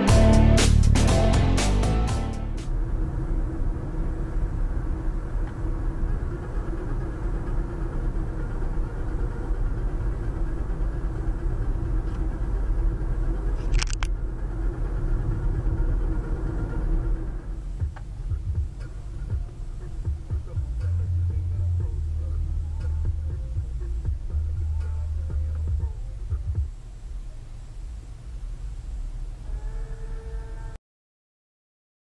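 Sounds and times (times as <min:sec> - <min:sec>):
car cabin road rumble: 0:02.5 - 0:29.8.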